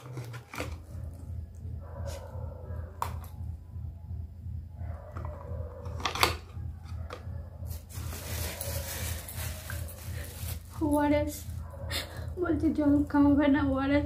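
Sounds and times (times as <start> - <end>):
steady low hum: 0.8 - 14.0
medicine bottles knocking and tapping: 5.2 - 7.3.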